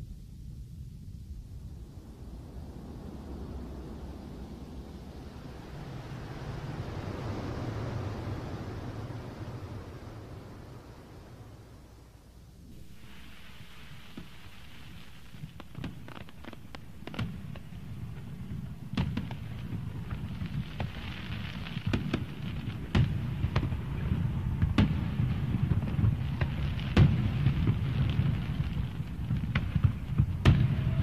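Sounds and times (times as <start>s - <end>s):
low rumble: 0.0s - 31.0s
sharp crackles and pops: 12.7s - 31.0s.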